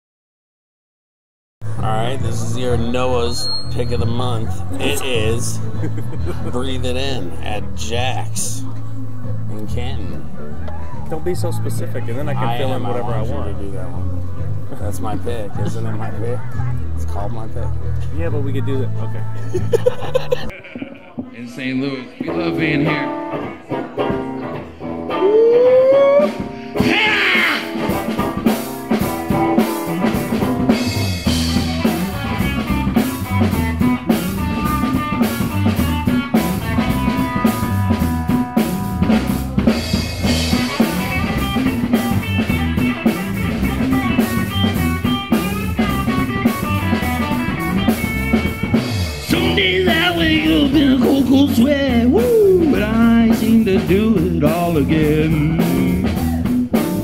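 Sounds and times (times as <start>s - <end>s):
drum kit: 1.6s - 10.3s, 19.6s - 57.0s
electric bass: 1.6s - 20.5s, 22.2s - 57.0s
electric guitar: 22.0s - 57.0s.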